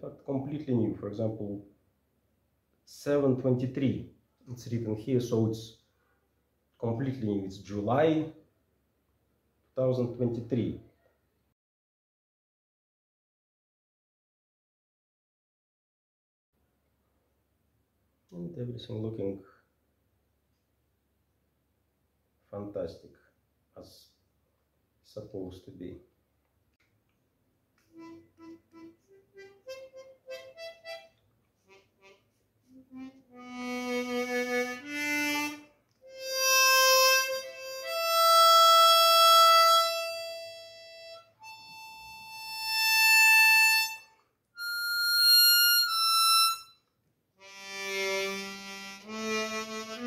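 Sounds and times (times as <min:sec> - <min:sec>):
harmonica notes: 0:27.9 - 0:50.0.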